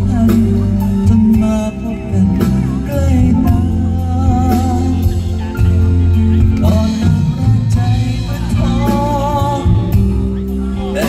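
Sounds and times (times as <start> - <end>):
electric bass: 0.0 - 11.0
keyboard: 0.0 - 11.0.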